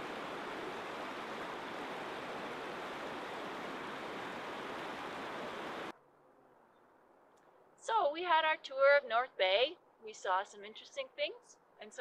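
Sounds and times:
creek rushing over rocks: 0.0 - 5.9.

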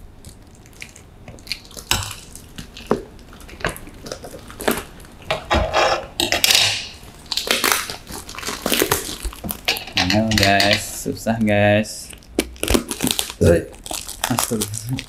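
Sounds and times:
packing tape crinkling: 0.0 - 5.3, 6.2 - 11.2, 12.0 - 15.0.

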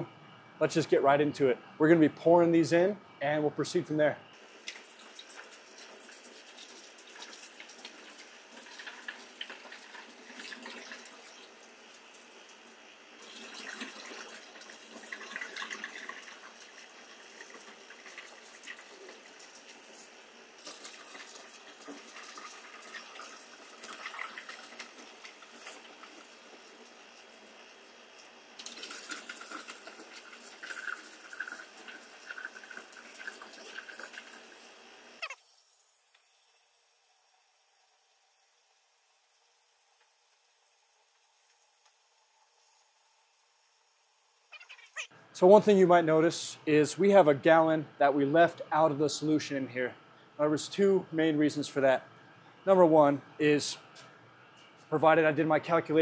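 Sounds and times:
liquid splashing into metal pot: 28.6 - 34.5.

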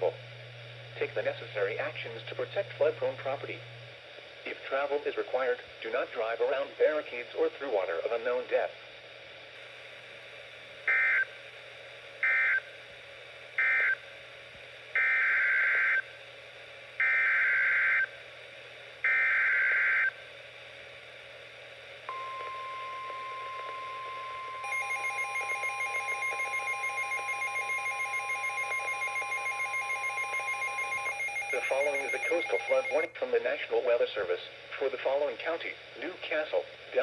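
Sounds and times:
steady alarm tone: 22.1 - 33.1
rapid pulsing alert beep: 24.6 - 33.1.

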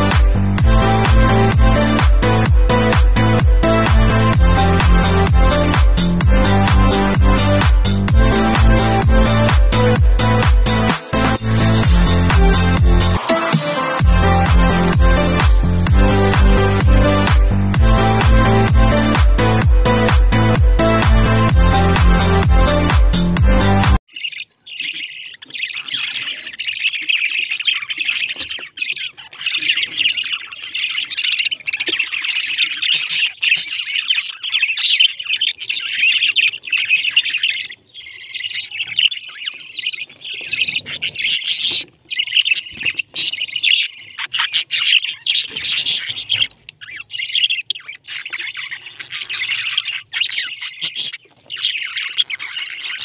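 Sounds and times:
budgerigars chattering: 0.0 - 17.4, 23.6 - 53.0.

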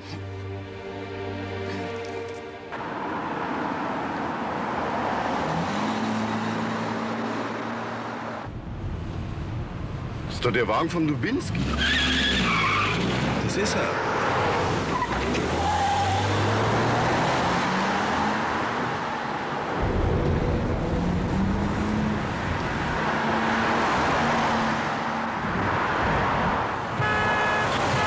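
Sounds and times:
road noise: 0.0 - 28.0
car engines accelerating: 11.2 - 27.0
car horn: 26.9 - 28.0.

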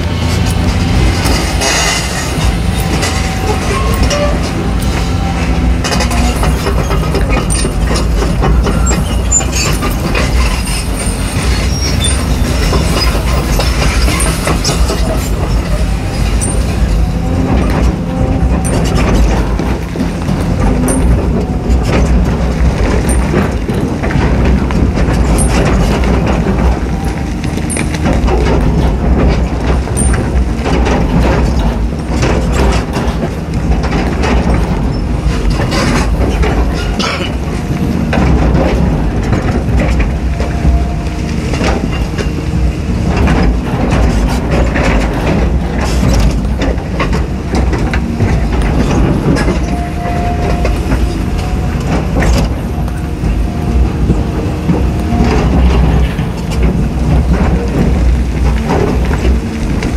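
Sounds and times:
bucket clanking against rock: 0.0 - 59.9
excavator diesel engine under load: 0.0 - 59.9.

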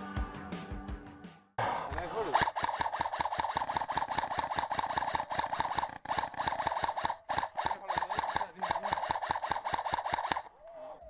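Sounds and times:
airsoft rifles firing bursts: 2.4 - 10.6.

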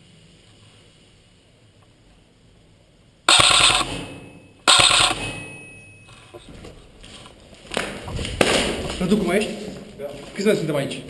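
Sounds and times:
airsoft rifle full-auto bursts: 3.3 - 5.6.

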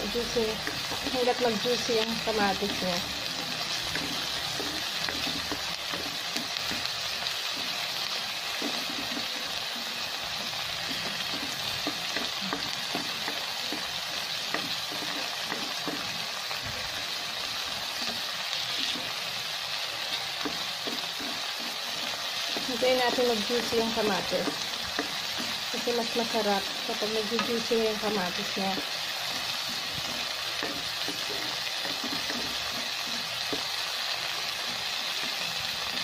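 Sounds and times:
vegetables sizzling in hot oil: 0.0 - 36.0
plastic spoon scraping pan: 8.5 - 9.5, 28.8 - 33.8.

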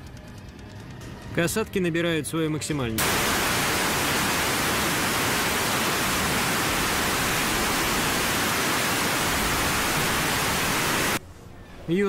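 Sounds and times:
steady rushing hiss: 3.0 - 11.2.

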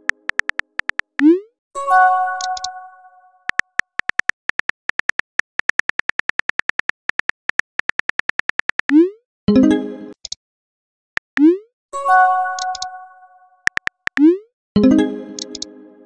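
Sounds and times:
phone keyboard typing clicks: 0.0 - 1.3, 2.4 - 2.8, 3.5 - 9.0, 12.6 - 12.9, 13.7 - 14.3, 15.4 - 15.7.

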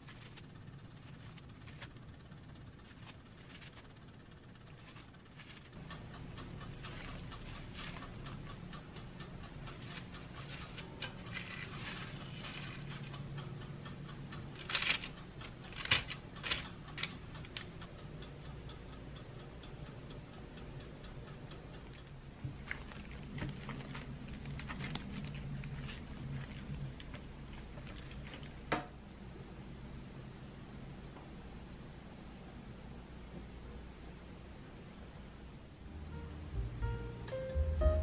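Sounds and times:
hands tapping and rustling dough: 0.0 - 2.0, 2.8 - 3.9, 4.7 - 5.8, 9.6 - 13.4, 22.4 - 29.0
low steady hum: 0.0 - 38.0
paper and plastic crinkling: 9.8 - 13.2, 22.5 - 28.6.

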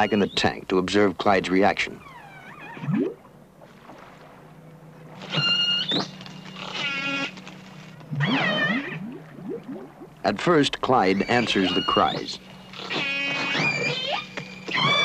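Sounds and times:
killer whale cries: 0.0 - 0.6, 1.9 - 3.2, 5.2 - 7.4, 8.1 - 15.0
low steady hum: 0.0 - 15.0.

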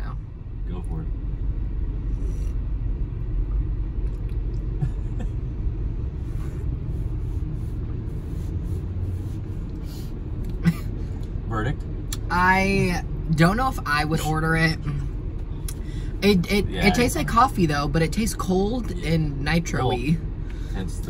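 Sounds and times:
van engine rumble: 0.0 - 21.0.

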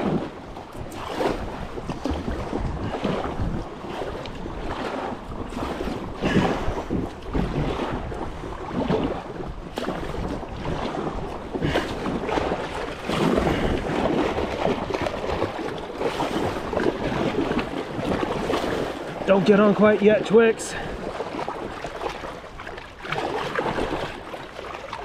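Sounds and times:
river water flowing: 0.0 - 25.0
wind rumbling on microphone: 0.0 - 25.0.

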